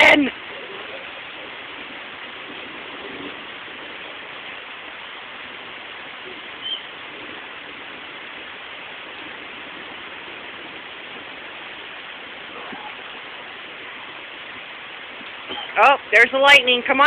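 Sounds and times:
rain hissing: 0.0s - 17.0s
short high-pitched squeak: 15.5s - 15.8s.

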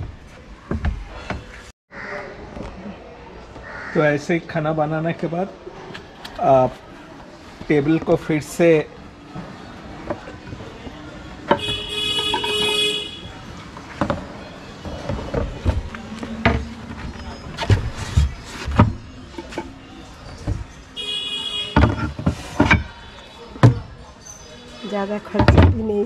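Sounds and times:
vehicle horn honking: 11.6s - 13.4s, 21.0s - 22.1s.

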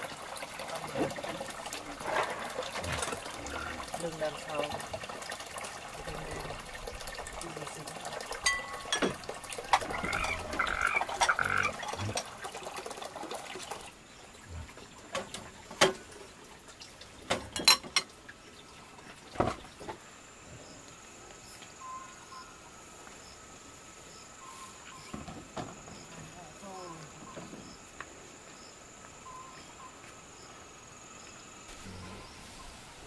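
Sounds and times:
faint animal calls: 9.6s - 12.2s, 31.7s - 32.8s.

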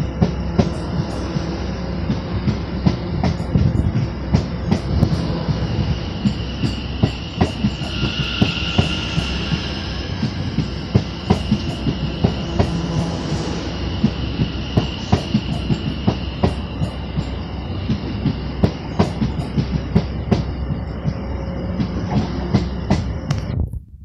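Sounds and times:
train wheels clicking over rail joints: 0.0s - 23.5s
high electric whine: 4.9s - 18.6s.

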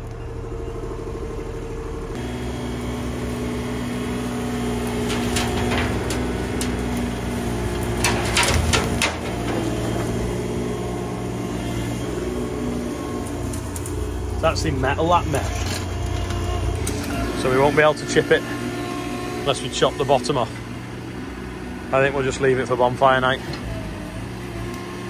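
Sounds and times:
diesel engine under load: 0.0s - 25.0s
branches cracking and snapping: 2.5s - 17.6s.

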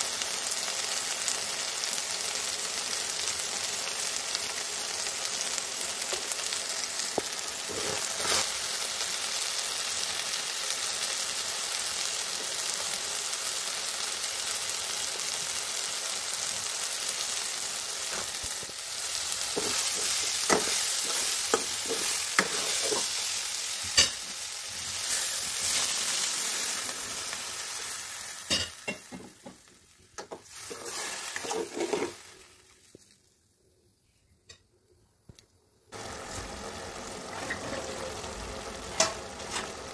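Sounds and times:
vegetables sizzling in oil: 0.0s - 33.6s, 35.8s - 39.9s
metal spatula scraping and tapping: 19.5s - 23.2s, 30.2s - 32.2s.

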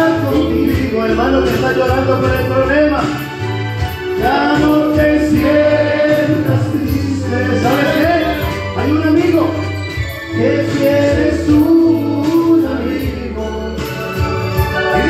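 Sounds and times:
amplified band accompaniment: 0.0s - 15.0s
congregation singing: 3.8s - 9.3s, 9.9s - 15.0s.

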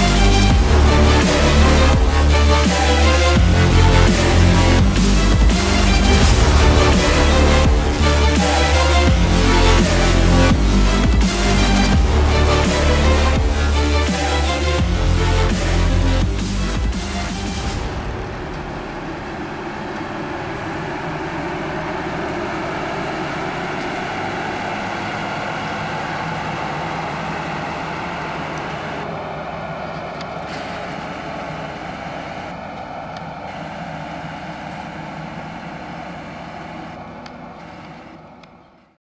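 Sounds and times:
combine harvester diesel engine: 0.0s - 38.9s.

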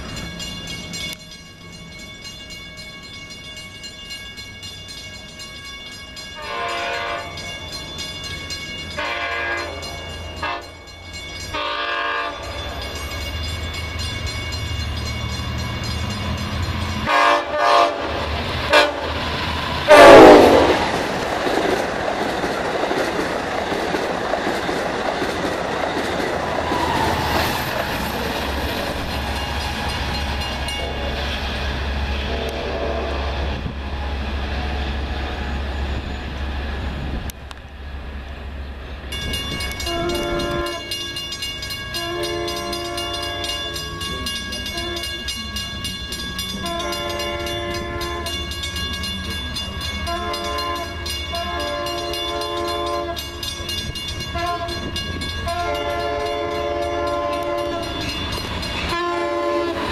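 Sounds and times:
train rumbling past: 0.0s - 59.9s
train air horn blasts: 6.4s - 7.5s, 9.0s - 10.8s, 11.5s - 12.5s, 17.0s - 19.2s, 19.8s - 20.8s, 32.2s - 33.5s, 39.8s - 41.0s, 42.0s - 43.7s, 44.7s - 45.2s, 46.6s - 48.4s, 50.1s - 53.3s, 54.3s - 54.9s, 55.5s - 58.0s, 58.9s - 59.9s.

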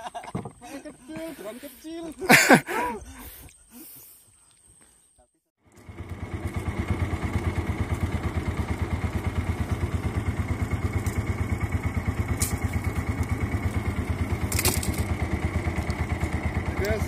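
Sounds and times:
boat engine thudding: 5.8s - 17.0s.

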